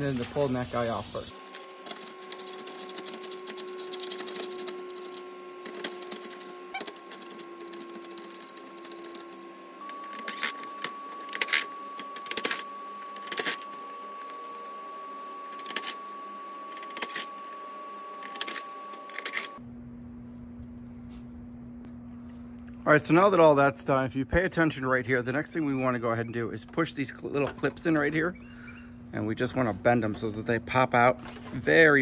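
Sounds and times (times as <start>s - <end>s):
power driver running: 0.0s - 19.6s
plastic parts clicking and rattling: 1.8s - 9.4s.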